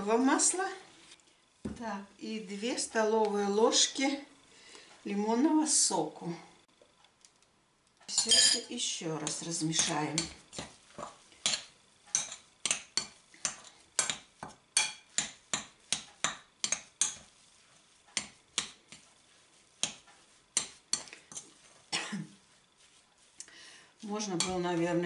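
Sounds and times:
metal spoon clinking on glass bowl: 8.1s - 8.7s.

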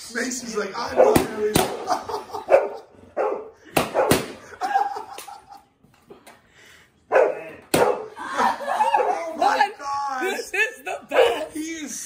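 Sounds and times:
small dog barking: 7.1s - 8.1s.

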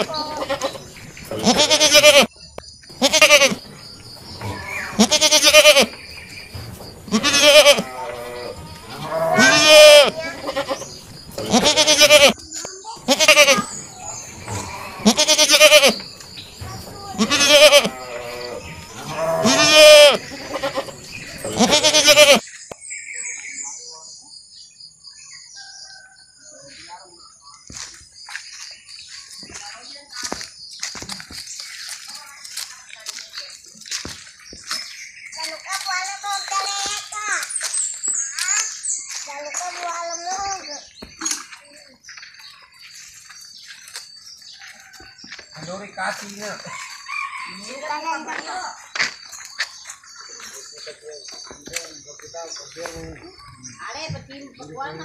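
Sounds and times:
young goats bleating: 0.0s - 2.3s, 2.9s - 6.0s, 7.0s - 22.5s.

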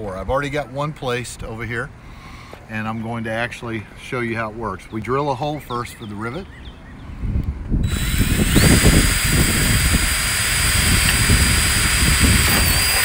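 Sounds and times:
cordless drill drilling steel: 7.8s - 13.0s.

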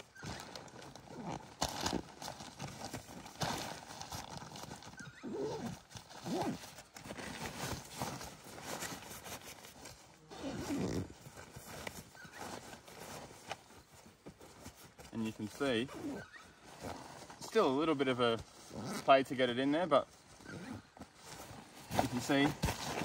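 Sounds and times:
zipper pulled closed: 0.0s - 13.6s, 15.2s - 17.6s, 18.5s - 19.4s, 20.4s - 23.0s
fabric rustling: 20.2s - 23.0s.

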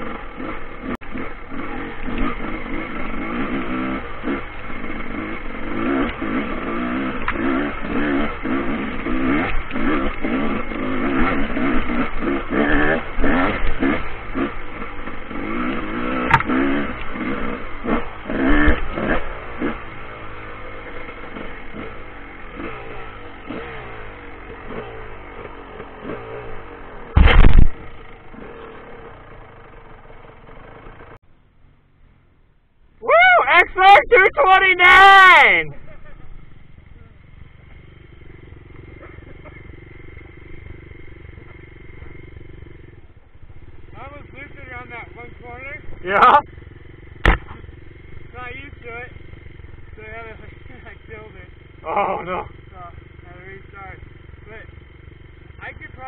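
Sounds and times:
dirt bike engine revving: 0.0s - 31.2s, 33.6s - 56.0s
loud thump: 16.2s - 16.7s, 27.1s - 28.0s, 47.2s - 47.7s.

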